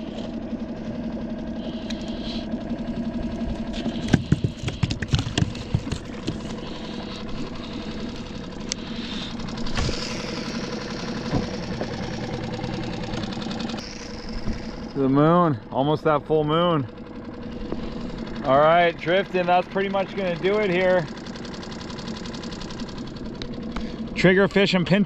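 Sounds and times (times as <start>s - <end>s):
outboard motor idling: 0.0s - 25.0s
sharp knocks and clatter: 3.6s - 6.9s, 11.2s - 12.2s.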